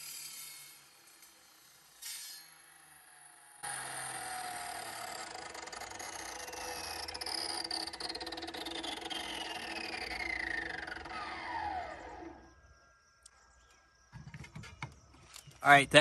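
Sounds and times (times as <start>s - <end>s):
saw motor whine winding down: 0.0s - 12.8s.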